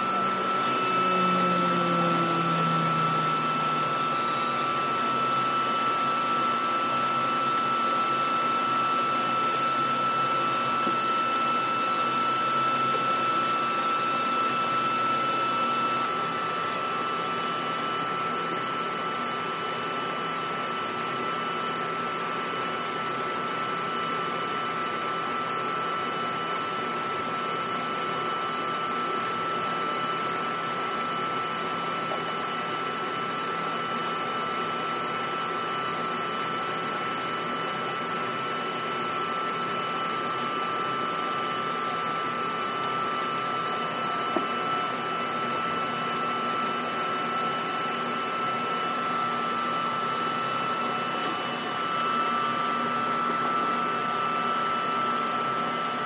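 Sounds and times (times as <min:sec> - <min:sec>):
aircraft turbine engines whining: 0:00.0 - 0:23.6.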